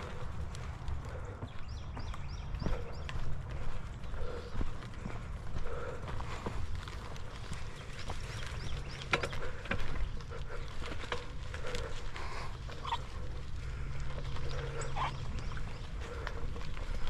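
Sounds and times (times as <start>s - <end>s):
low rumble of tyres: 0.0s - 17.0s
wind: 0.0s - 17.0s
bike knocks and rattles: 7.9s - 12.0s.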